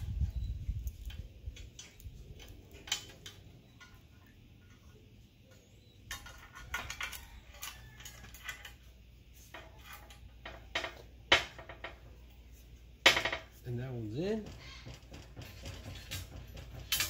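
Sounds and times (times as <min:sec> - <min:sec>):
metal parts clinking: 0:00.8 - 0:05.1, 0:06.0 - 0:08.9, 0:15.8 - 0:17.0.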